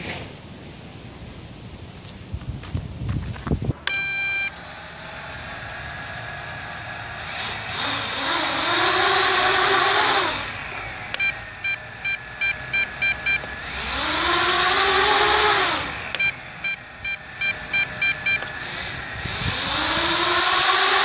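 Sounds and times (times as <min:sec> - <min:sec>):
drone motors whining: 0:03.5 - 0:21.0
short electronic beeps: 0:03.9 - 0:04.6, 0:11.2 - 0:13.6, 0:16.2 - 0:18.5.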